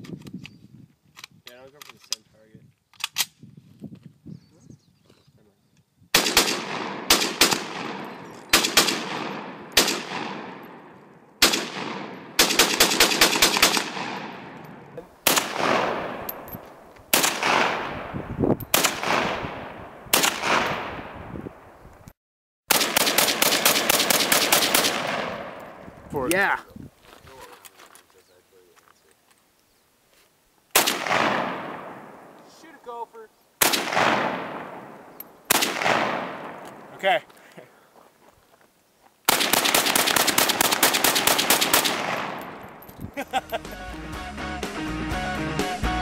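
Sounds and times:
rifle shots echoing: 0:06.1 - 0:21.2, 0:22.7 - 0:25.8, 0:30.7 - 0:32.4, 0:33.6 - 0:36.9, 0:39.3 - 0:42.8.

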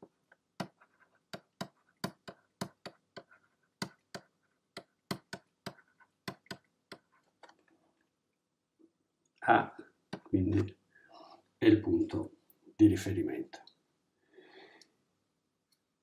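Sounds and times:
stylus ticking on drawing tablet: 0:00.6 - 0:07.1.

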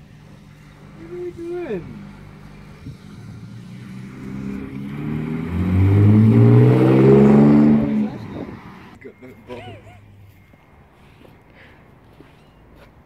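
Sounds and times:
car accelerating past: 0:00.3 - 0:09.0.

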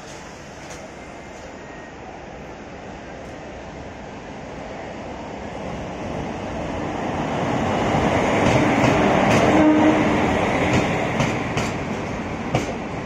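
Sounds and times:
train coaches rumbling: 0:00.0 - 0:13.0.

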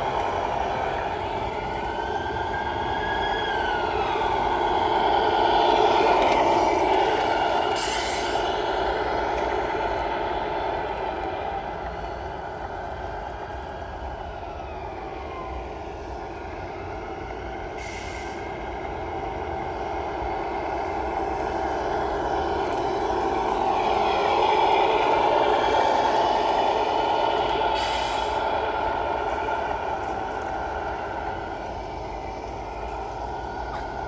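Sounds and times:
toy truck electric drive whine: 0:00.0 - 0:14.1, 0:16.8 - 0:34.0.

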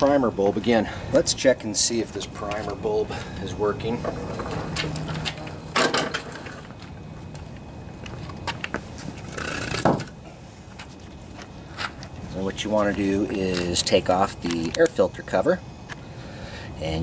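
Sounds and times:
lawn mower rattling on concrete: 0:03.9 - 0:06.7.

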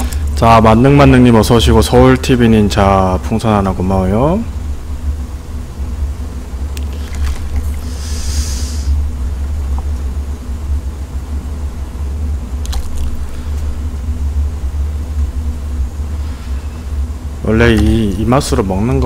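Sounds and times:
faint hum: 0:00.0 - 0:19.0
low background rumble: 0:00.0 - 0:19.0
short hiss: 0:07.8 - 0:09.0.

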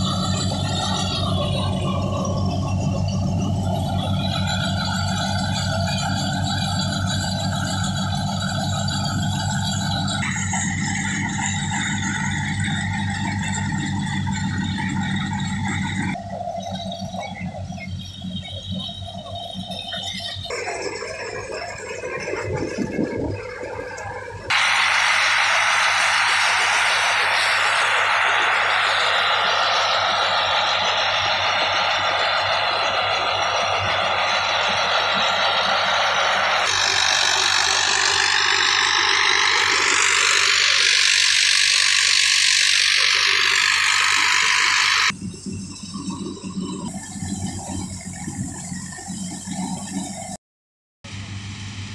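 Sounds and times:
thresher hum and rattle: 0:00.0 - 0:50.4, 0:51.1 - 0:51.9
tractor diesel engine running: 0:00.0 - 0:50.4, 0:51.0 - 0:51.9
loud rushing noise: 0:24.5 - 0:45.2.

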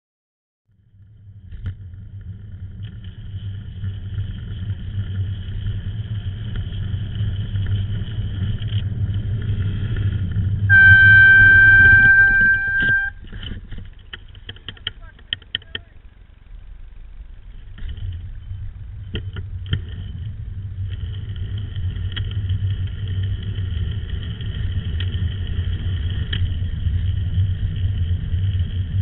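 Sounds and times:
road and traffic rumble: 0:00.7 - 0:29.0
bicycle air horn blast: 0:10.7 - 0:13.2.

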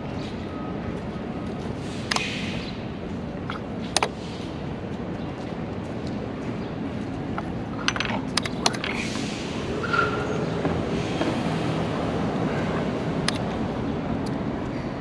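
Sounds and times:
street traffic passing: 0:00.0 - 0:15.0
chess piece set down: 0:07.4 - 0:09.1.

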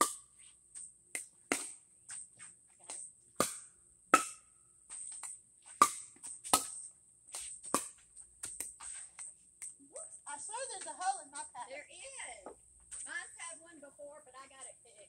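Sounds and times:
paddles striking plastic ball: 0:01.2 - 0:01.8, 0:03.4 - 0:04.5, 0:05.2 - 0:09.8.

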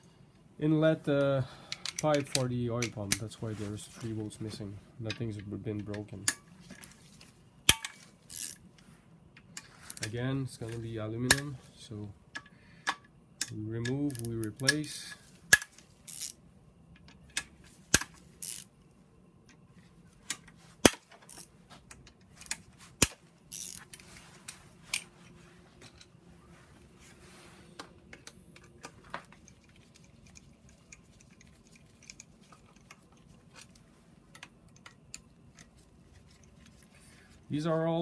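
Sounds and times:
hand ratchet clicking: 0:07.7 - 0:08.6, 0:15.6 - 0:16.4, 0:17.9 - 0:18.7, 0:20.3 - 0:21.5, 0:22.4 - 0:24.0
metal clinks of socket and bolts: 0:12.3 - 0:16.4.

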